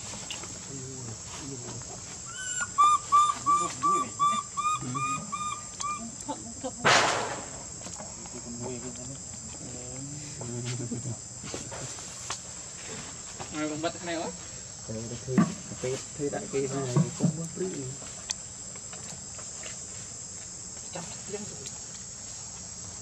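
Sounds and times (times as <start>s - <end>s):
insect drone: 0.0s - 23.0s
animal whistle-like calls: 2.3s - 6.1s.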